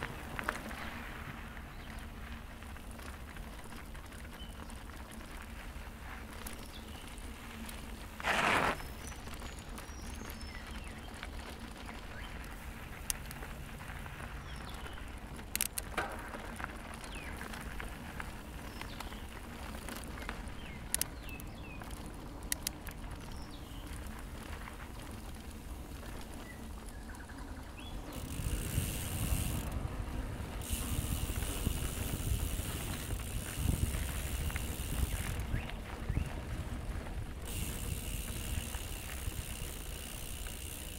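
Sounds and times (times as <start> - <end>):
bike tyres rumbling on dirt: 0.0 - 40.9
bush ambience: 0.0 - 40.9
wind noise: 0.0 - 40.9
sharp clicks: 15.4 - 16.1.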